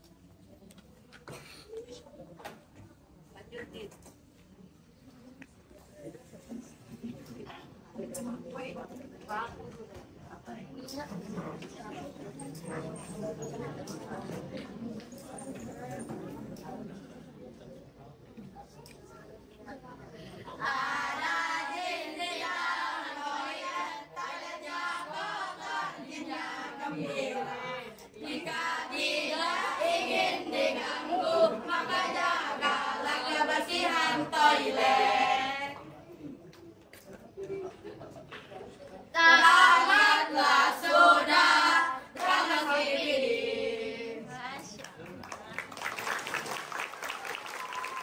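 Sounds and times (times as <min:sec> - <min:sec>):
children singing together: 0:20.5 - 0:35.8, 0:39.2 - 0:44.2.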